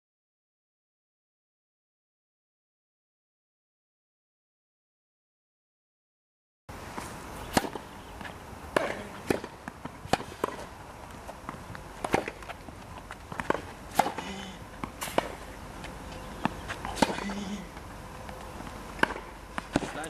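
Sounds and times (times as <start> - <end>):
racquets striking tennis ball: 6.9 - 20.0
ball bouncing on court: 7.0 - 10.7, 11.3 - 15.5, 16.1 - 20.0.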